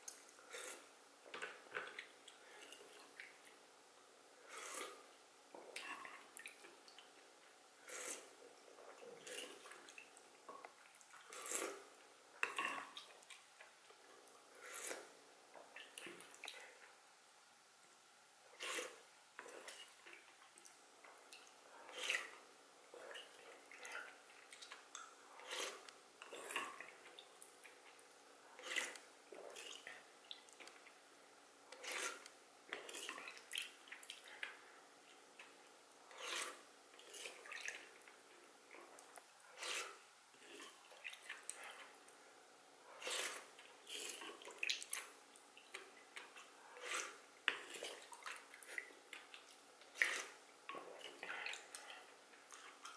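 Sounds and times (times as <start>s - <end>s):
person sipping broth: 4.4s - 5.1s, 10.6s - 13.4s, 18.5s - 20.3s, 21.1s - 30.8s, 31.7s - 34.8s, 35.4s - 42.2s, 42.8s - 45.2s, 46.2s - 52.9s
wooden spoon scraping pot: 4.5s - 5.0s, 7.8s - 9.8s, 11.3s - 13.0s, 14.6s - 15.2s, 18.5s - 20.0s, 21.8s - 27.0s, 28.5s - 30.1s, 31.7s - 33.3s, 36.1s - 37.9s, 38.8s - 40.8s, 42.9s - 44.4s, 46.2s - 48.9s, 49.9s - 52.1s.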